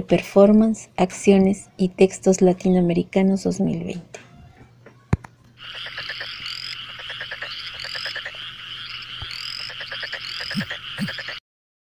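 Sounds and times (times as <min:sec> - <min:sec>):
frogs calling: 0:05.6 - 0:11.4
short low frog calls: 0:05.6 - 0:11.4.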